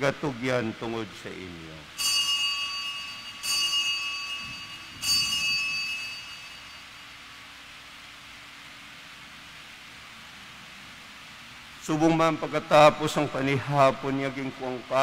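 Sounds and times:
altar bell ringing: 0:01.9 - 0:07.6.

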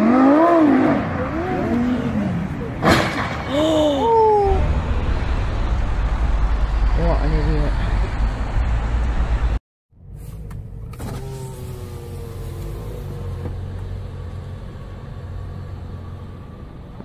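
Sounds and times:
passing car road noise: 0:00.0 - 0:09.6.

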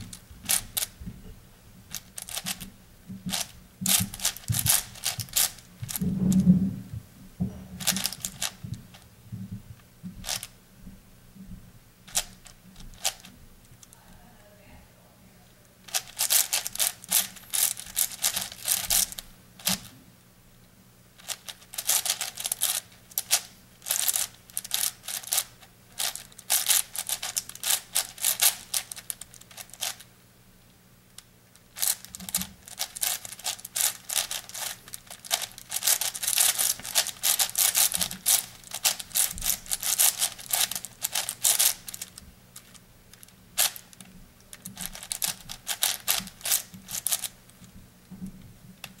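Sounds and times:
faint low hum: 0:00.0 - 0:49.0
puzzle cube clicking: 0:03.3 - 0:06.0, 0:07.8 - 0:08.6, 0:12.1 - 0:13.9, 0:15.9 - 0:19.9, 0:21.2 - 0:30.1, 0:31.8 - 0:47.3.

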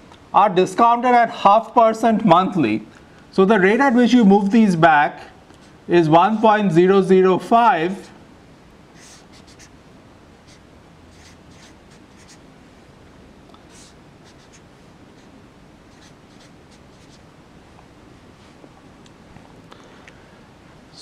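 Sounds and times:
low steady hiss: 0:00.0 - 0:21.0
marker writing on whiteboard: 0:09.0 - 0:09.7, 0:10.4 - 0:10.6, 0:11.2 - 0:12.4, 0:13.7 - 0:14.6, 0:15.9 - 0:17.2.

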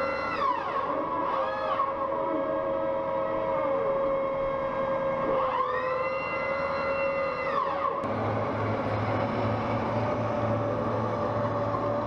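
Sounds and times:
high mechanical whine: 0:03.0 - 0:12.0
tracked vehicles rumbling: 0:08.0 - 0:12.0.

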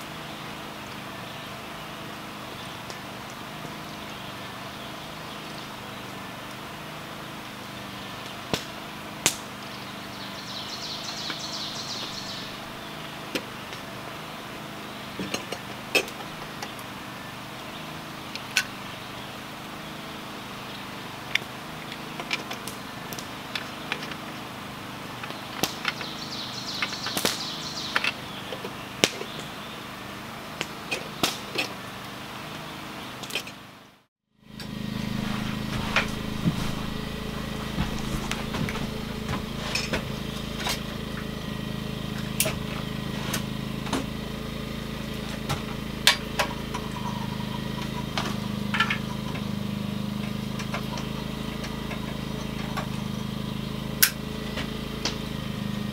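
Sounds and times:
steady low hum: 0:34.4 - 0:55.9.

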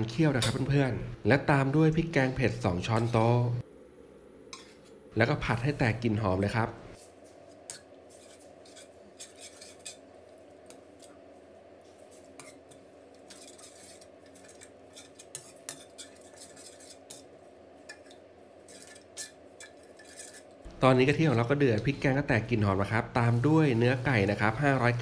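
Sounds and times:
steady low hum: 0:00.0 - 0:25.0
metal spoon scraping pot: 0:07.7 - 0:10.1, 0:12.2 - 0:20.6.

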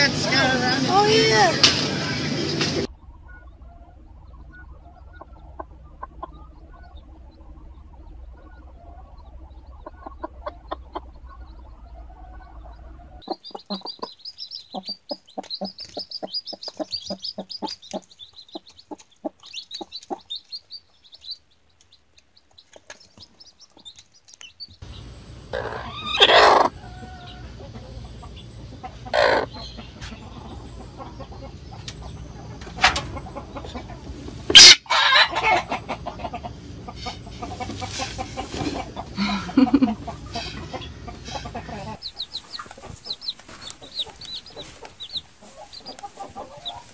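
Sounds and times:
chicks peeping: 0:00.0 - 0:46.9
hen clucking softly: 0:02.9 - 0:46.9
hen squawking loudly: 0:29.1 - 0:29.5.

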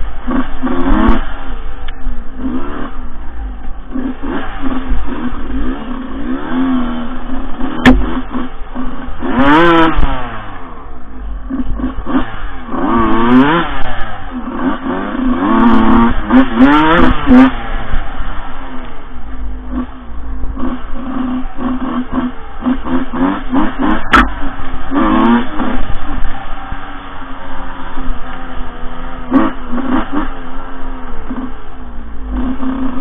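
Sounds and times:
dirt bike engine revving: 0:00.0 - 0:33.0
sharp knock: 0:07.8 - 0:08.2.

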